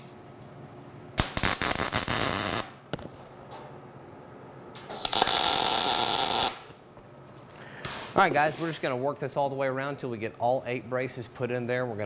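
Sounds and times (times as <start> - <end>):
welding arc crackling: 1.2 - 3.2, 4.9 - 6.8.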